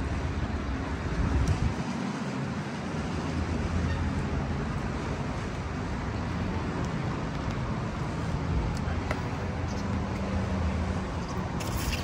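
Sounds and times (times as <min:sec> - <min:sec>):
wind rumbling on microphone: 0:00.0 - 0:03.9.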